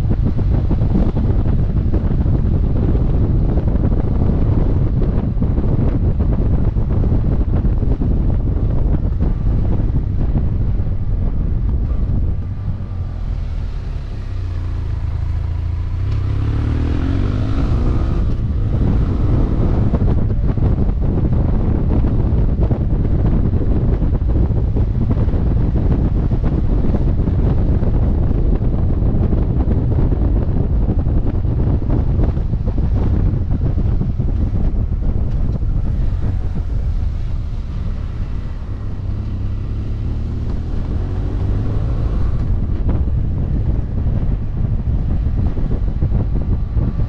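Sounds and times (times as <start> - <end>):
wind rush on microphone: 0.0 - 47.0
motorcycle engine revving: 11.9 - 47.0.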